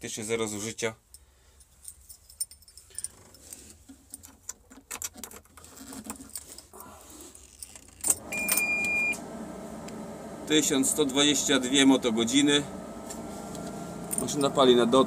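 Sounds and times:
keys jangling: 0:01.6 - 0:05.4
diesel engine starting and idling: 0:08.2 - 0:15.0
warning buzzer beep: 0:08.3 - 0:09.2.

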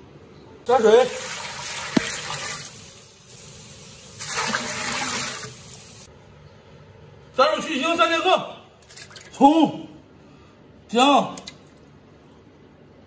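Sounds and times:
water pouring into a pot: 0:01.0 - 0:06.1.

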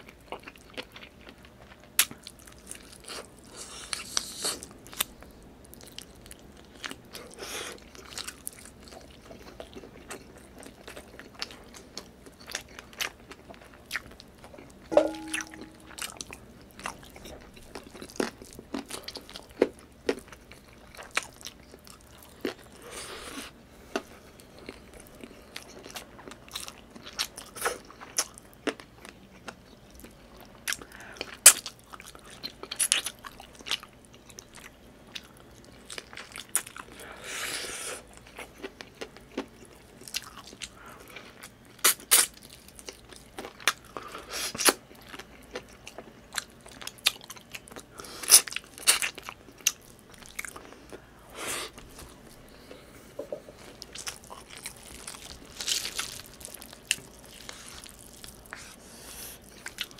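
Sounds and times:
close-miked chewing and lip smacks: 0:00.0 - 0:14.9, 0:38.0 - 0:51.1, 0:53.4 - 0:59.9
brief hum-like tone: 0:14.9 - 0:16.1.

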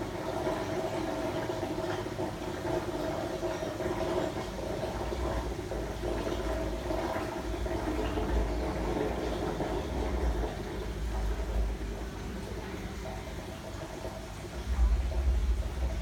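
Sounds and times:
aquarium air stones bubbling: 0:00.0 - 0:16.0
low hum: 0:14.5 - 0:16.0.

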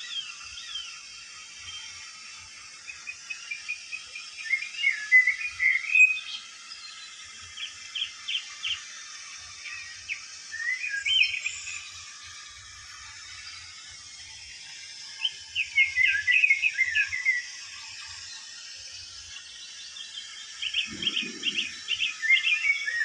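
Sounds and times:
steady hiss: 0:00.0 - 0:23.0
birds chirping: 0:19.4 - 0:23.0.

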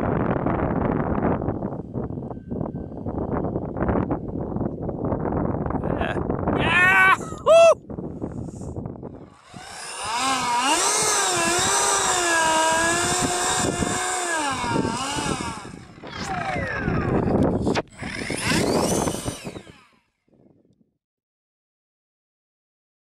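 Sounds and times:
model jet fan whining: 0:08.3 - 0:20.2.

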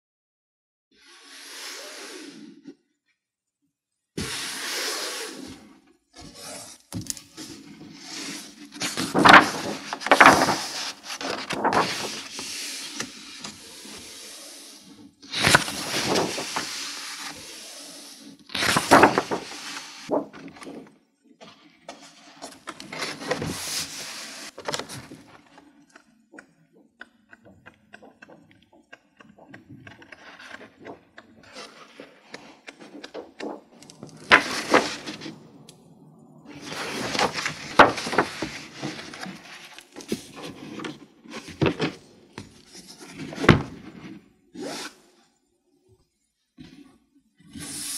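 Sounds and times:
book pages turning: 0:06.2 - 0:14.0, 0:15.3 - 0:17.4, 0:18.5 - 0:35.7, 0:36.5 - 0:44.2.

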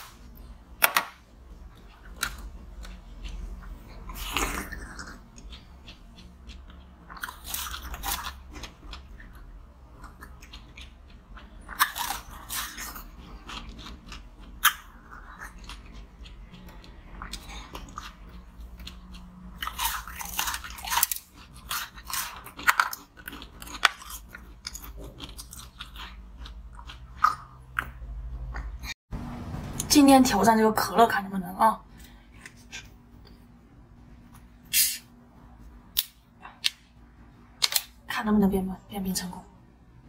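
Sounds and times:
low steady hum: 0:00.0 - 0:40.0
chewing ice: 0:01.6 - 0:28.7
teeth crunching ice: 0:02.0 - 0:28.0.

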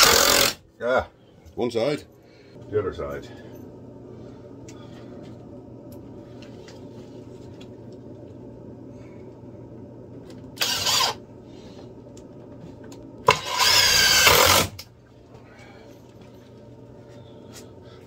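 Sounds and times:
power drill driving screws: 0:00.0 - 0:00.6, 0:10.6 - 0:11.2, 0:13.3 - 0:14.8.

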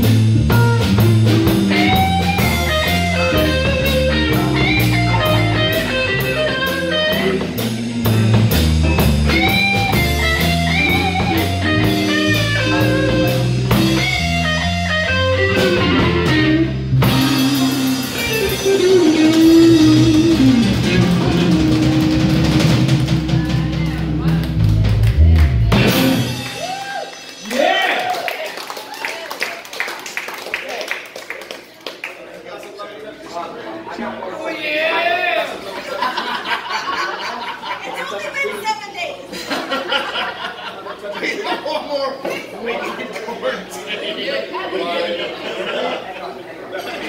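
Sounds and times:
electric guitar lead: 0:00.0 - 0:27.4
bass guitar: 0:00.0 - 0:27.8
drum kit with hi-hat: 0:00.0 - 0:27.8.

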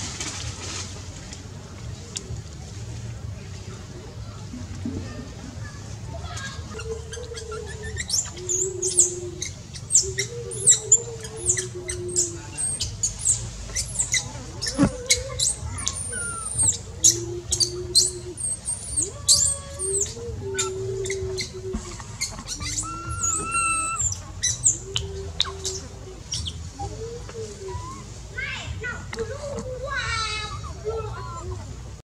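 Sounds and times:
low held notes: 0:00.2 - 0:32.0
animal squeaks and chirps: 0:06.7 - 0:26.9.

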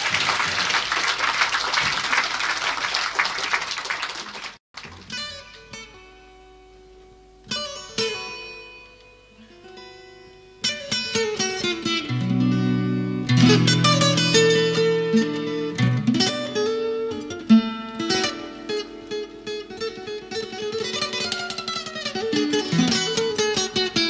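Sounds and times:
audience applauding: 0:00.0 - 0:05.0
guitar notes and strummed chords: 0:05.1 - 0:24.0.

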